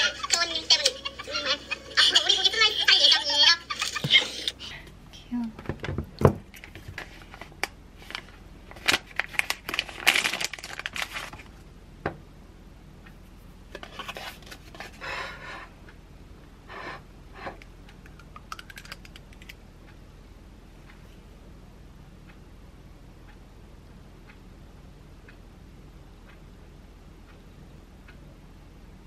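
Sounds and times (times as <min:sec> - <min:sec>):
plastic wrapping crinkling: 0:06.5 - 0:11.6.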